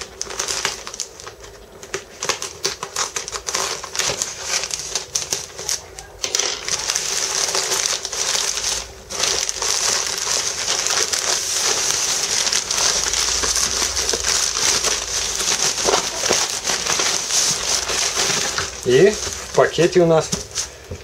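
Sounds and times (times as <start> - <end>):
plastic bag and bubble wrap crinkling: 0.0 - 21.0.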